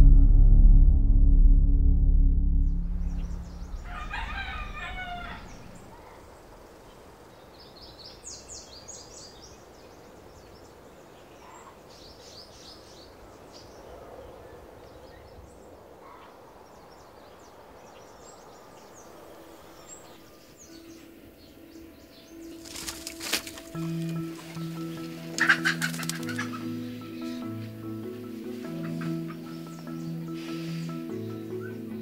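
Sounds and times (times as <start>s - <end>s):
small birds chirping: 3.0s - 32.0s
fowl chattering call: 25.3s - 26.7s.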